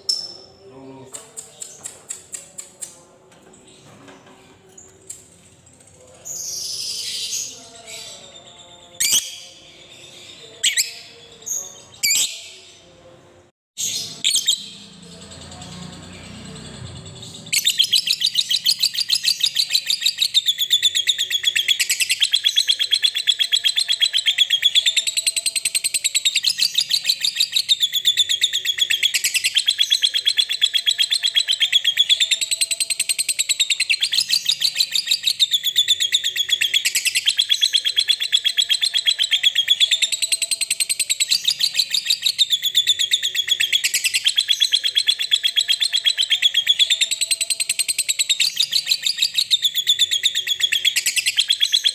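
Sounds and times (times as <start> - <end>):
bird chattering high-pitched notes: 17.2 - 51.9.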